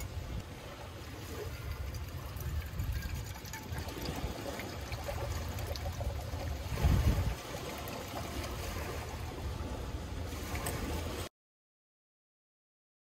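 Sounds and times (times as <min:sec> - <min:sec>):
water pouring into metal cup: 0:01.0 - 0:08.6.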